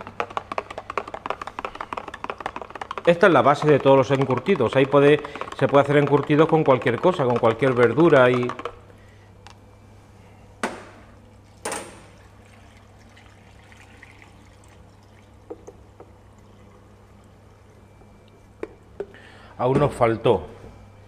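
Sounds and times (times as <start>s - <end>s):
liquid pouring into glass jar: 11.4s - 18.9s.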